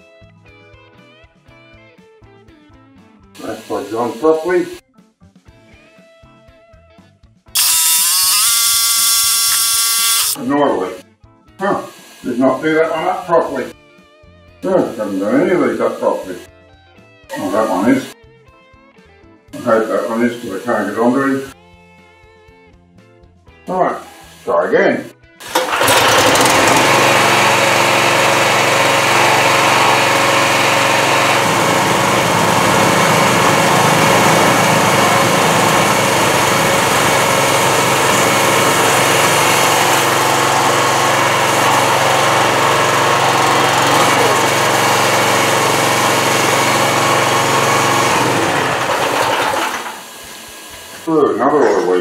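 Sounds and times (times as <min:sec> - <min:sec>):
small petrol engine running: 0:07.6 - 0:10.4, 0:17.3 - 0:18.2, 0:25.4 - 0:51.1.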